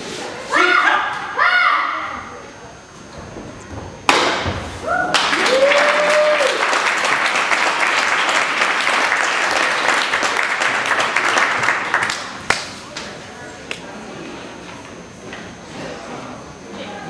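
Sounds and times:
kick breaking board crack: 4.1 - 4.6
crowd cheering: 4.8 - 12.6
audience applause: 5.1 - 12.7.

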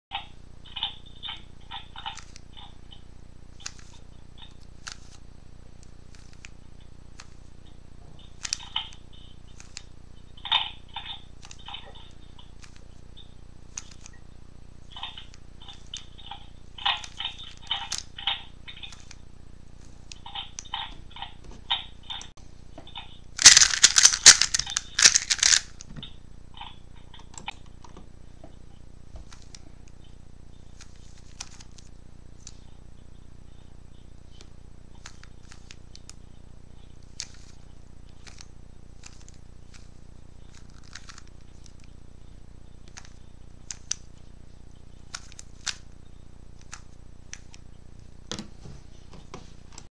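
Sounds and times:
plastic puzzle cube clicking: 1.3 - 2.7, 3.6 - 5.2, 6.1 - 6.6, 7.2 - 7.4, 8.2 - 9.9, 10.5 - 12.8, 13.7 - 14.2, 15.0 - 19.2, 23.4 - 25.9, 30.8 - 32.6, 34.4 - 36.2, 37.0 - 41.9, 42.8 - 44.0, 45.1 - 45.9, 46.6 - 47.6.

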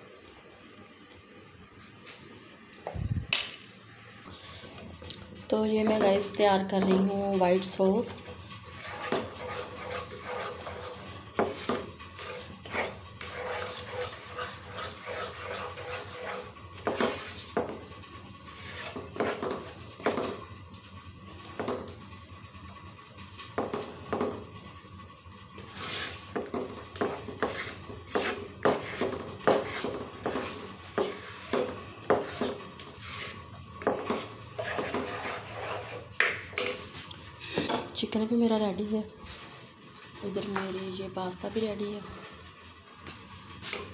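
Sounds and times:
plastic spoon scraping a pan: 5.8 - 17.8, 18.5 - 20.3, 25.7 - 37.9.

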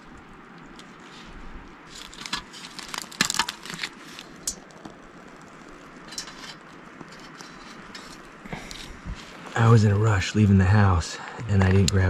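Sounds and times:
rustling dry leaves: 0.0 - 9.9.

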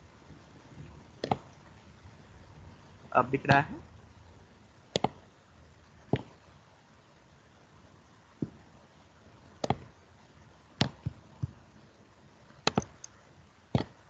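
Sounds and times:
faint background hiss: 0.0 - 14.0
computer mouse clicks: 4.9 - 5.2, 9.6 - 9.9, 12.6 - 13.2.

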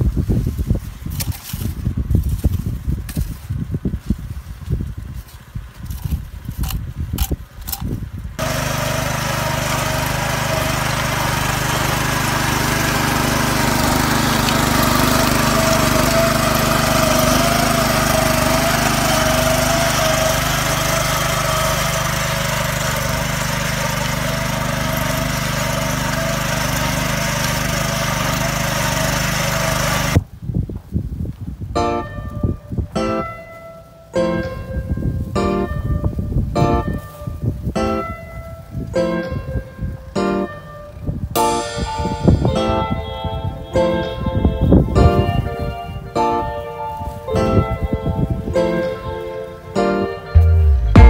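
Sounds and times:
hand hoes scraping soil: 0.5 - 30.2
small petrol engine running: 5.2 - 30.2, 50.4 - 51.0.

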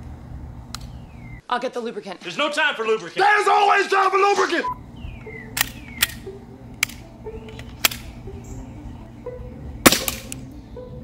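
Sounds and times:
background music: 4.8 - 11.0
airsoft pistol shots: 9.9 - 10.4.

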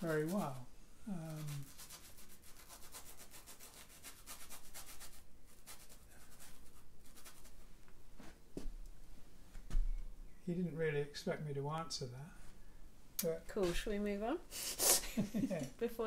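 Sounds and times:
paintbrush scratching canvas: 0.0 - 7.7.

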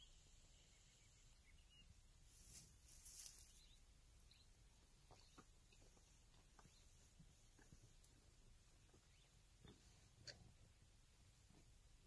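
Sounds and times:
soft bird chirps: 0.0 - 7.1, 8.8 - 10.0
high hissy rustle: 2.3 - 3.6.

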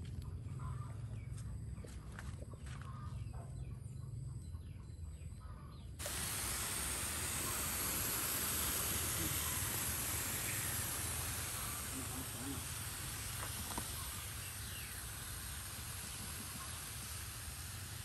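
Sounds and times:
steady hiss: 6.0 - 18.0.

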